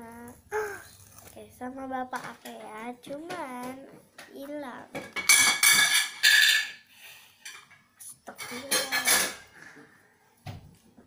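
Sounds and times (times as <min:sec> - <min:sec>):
plastic packaging crinkling: 0:00.6 - 0:02.6.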